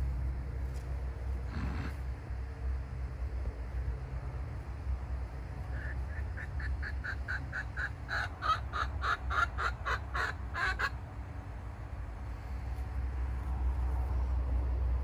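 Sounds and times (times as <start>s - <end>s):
chicken clucking rapidly: 5.6s - 11.0s.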